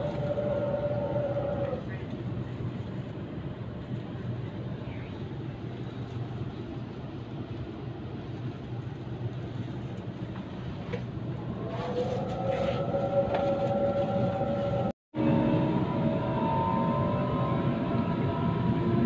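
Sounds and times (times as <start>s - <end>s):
electric train rumbling: 0.0s - 19.0s
multi-tone motor whine: 11.4s - 19.0s.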